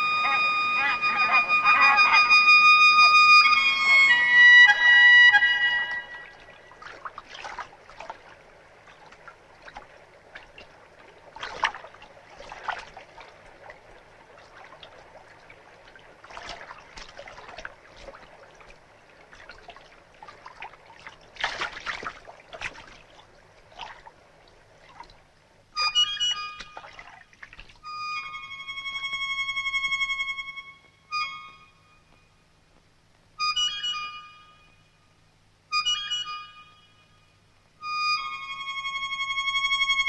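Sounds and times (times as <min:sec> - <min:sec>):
water splashing and trickling: 0:02.9 - 0:30.2.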